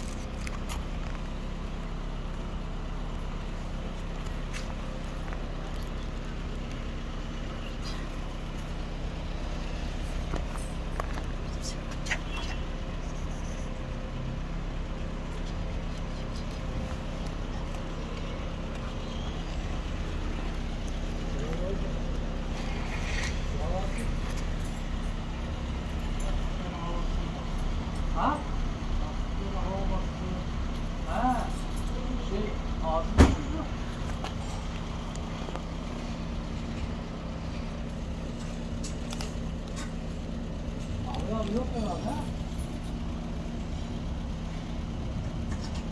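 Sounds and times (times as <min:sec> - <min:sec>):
cats crunching dry kibble: 0:00.0 - 0:01.6, 0:03.3 - 0:08.9
low mechanical hum: 0:00.0 - 0:45.9
motor traffic rumble: 0:00.0 - 0:45.9.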